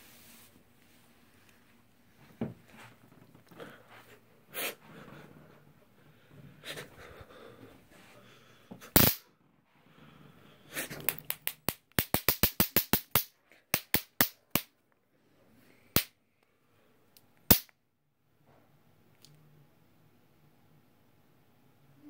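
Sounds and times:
stun gun electric cracks: 9.0s - 9.2s.

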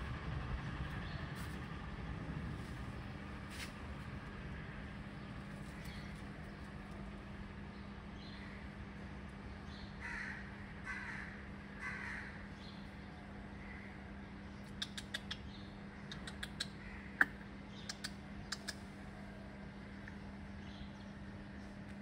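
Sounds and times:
sharp clicks: 17.9s - 18.9s.

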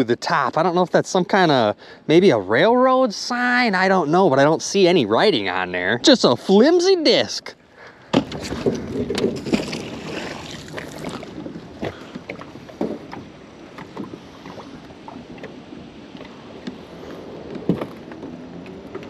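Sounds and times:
water splashing around a boat: 0.0s - 19.0s.

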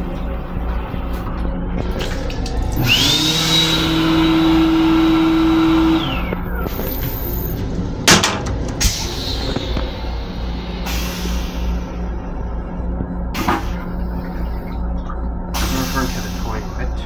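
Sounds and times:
hand dryer running: 2.7s - 6.3s.

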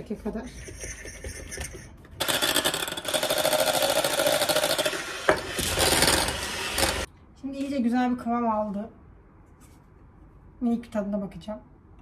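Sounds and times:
electric hand mixer whirring: 2.2s - 7.1s.

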